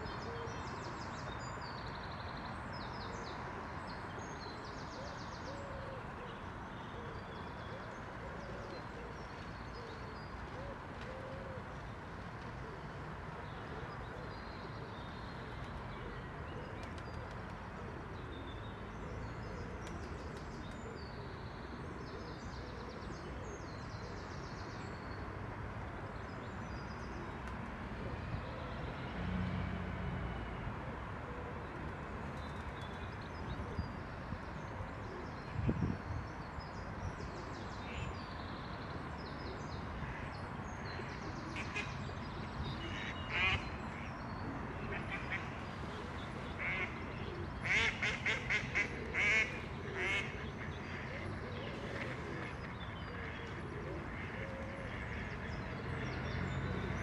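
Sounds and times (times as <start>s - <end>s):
outdoor background noise: 0.0s - 57.0s.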